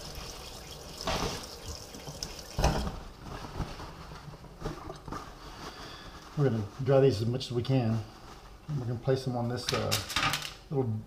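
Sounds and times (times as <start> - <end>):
tap water running into sink: 0.0 - 3.0.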